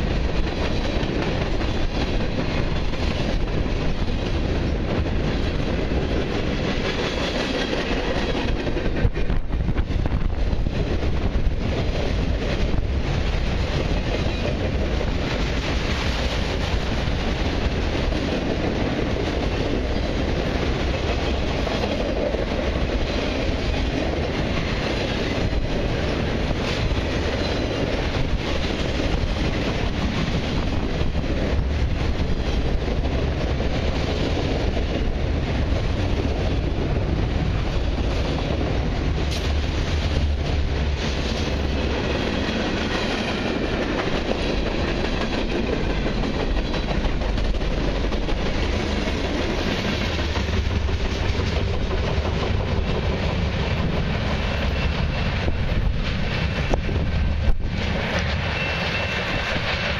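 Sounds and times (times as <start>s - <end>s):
freight train rumbling past: 0.0s - 59.9s
wheels clickety-clack on rails: 0.0s - 59.9s
wheel squeal: 58.5s - 59.5s.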